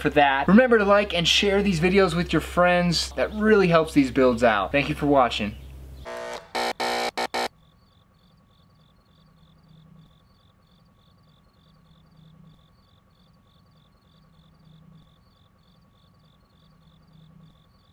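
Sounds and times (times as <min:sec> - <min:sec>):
faint insect chirping: 0:05.6 - 0:17.9.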